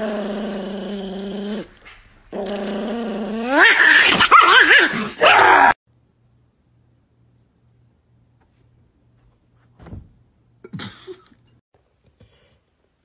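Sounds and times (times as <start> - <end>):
small dog growling: 0.0 - 5.8
dog yelping cries: 3.5 - 5.8.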